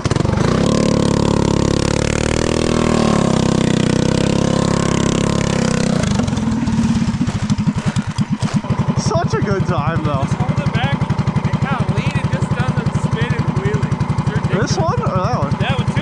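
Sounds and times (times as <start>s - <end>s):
small gas engine revving and idling: 0.0s - 16.0s.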